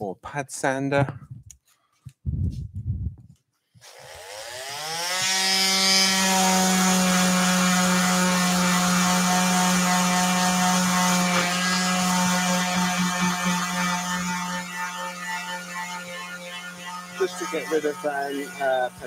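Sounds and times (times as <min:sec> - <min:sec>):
orbital sander motor humming: 0:03.8 - 0:19.0.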